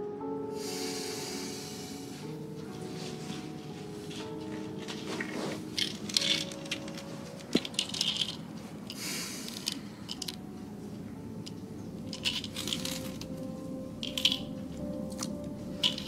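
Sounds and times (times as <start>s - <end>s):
soft background music: 0.0s - 16.0s
pills rattling in plastic bottle: 5.7s - 10.4s, 12.1s - 13.4s, 14.0s - 16.0s.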